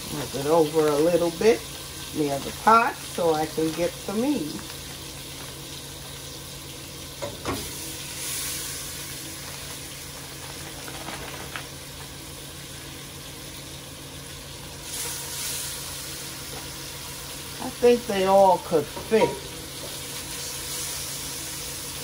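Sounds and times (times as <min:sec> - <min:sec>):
meat sizzling in hot oil: 0:00.0 - 0:22.0.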